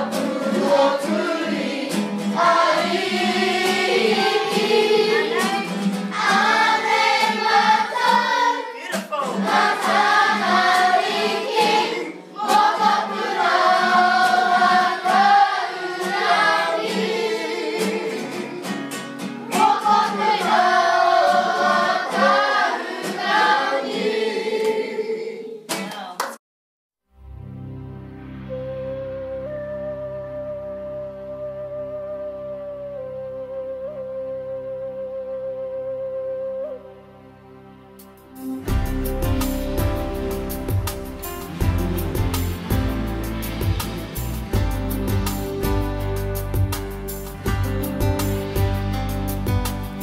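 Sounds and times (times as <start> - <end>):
choir singing: 0.0 - 25.7.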